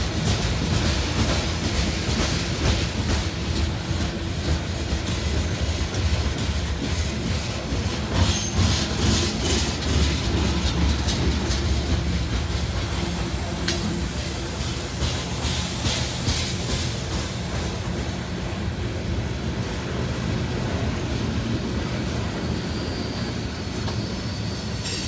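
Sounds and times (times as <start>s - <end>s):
wheels clacking over rail joints: 0.0s - 18.2s
train wheels rumbling on rail: 0.0s - 25.0s.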